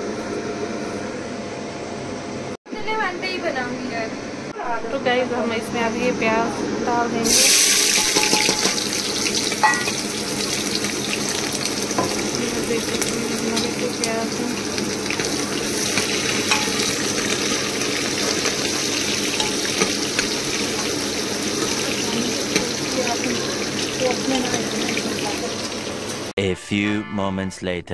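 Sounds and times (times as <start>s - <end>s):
onions sizzling in hot oil: 7.2s - 26.3s
metal spoon knocking on pot: 8.0s - 8.9s, 9.5s - 10.0s, 16.0s - 17.0s.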